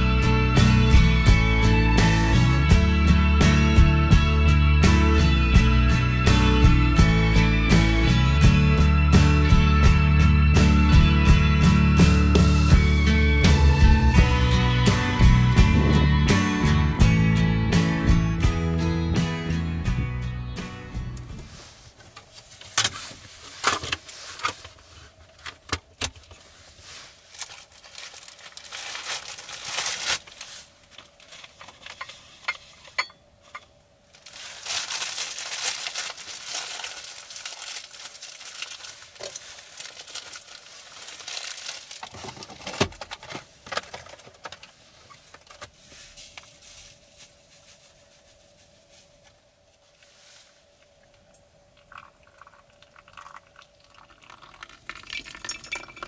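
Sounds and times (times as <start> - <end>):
faint steady hum: 21.1 - 56.0
crinkling and rustling: 21.2 - 56.0.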